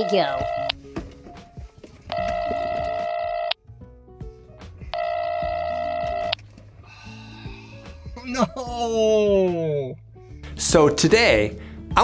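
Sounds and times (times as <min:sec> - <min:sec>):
mobile phone ringtone: 0:00.0 - 0:00.8, 0:02.1 - 0:03.6, 0:04.9 - 0:06.4.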